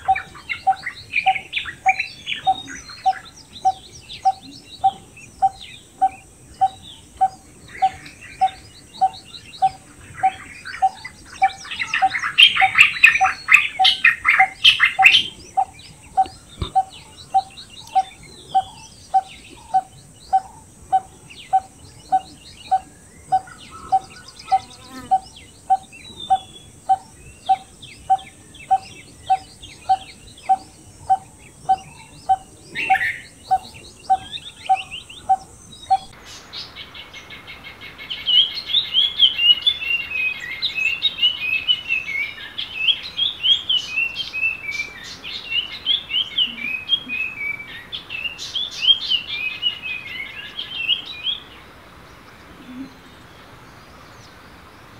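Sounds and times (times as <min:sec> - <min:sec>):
barbet hollow calls: 0:00.0 - 0:36.1
birds chirping: 0:00.0 - 0:54.9
insect hiss: 0:00.0 - 0:54.9.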